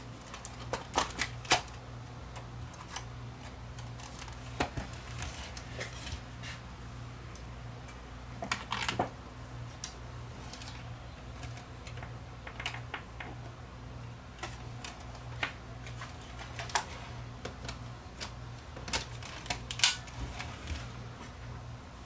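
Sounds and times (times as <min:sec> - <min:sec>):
low electrical hum: 0:00.0 - 0:22.0
small plastic parts clicking: 0:09.8 - 0:13.4, 0:14.4 - 0:20.2.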